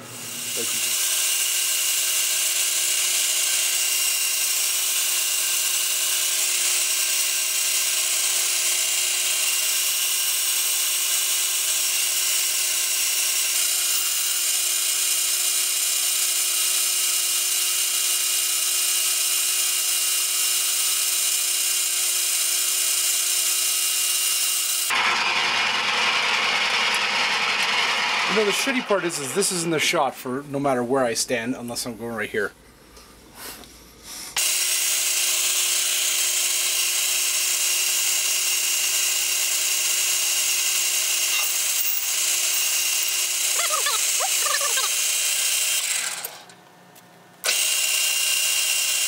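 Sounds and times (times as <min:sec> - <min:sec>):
hiss of lathe cutting metal: 0:00.0 - 0:01.1
metal lathe motor whine: 0:00.0 - 0:29.7.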